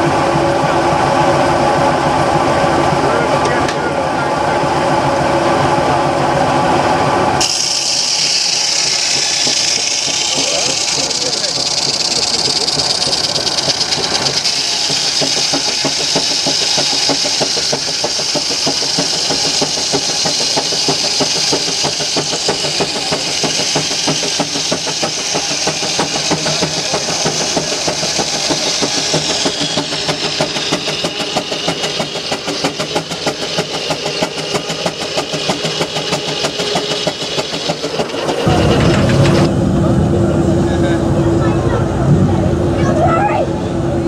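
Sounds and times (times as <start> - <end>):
engine running steadily: 0.0 - 44.0
circular saw blade hissing: 7.4 - 38.6.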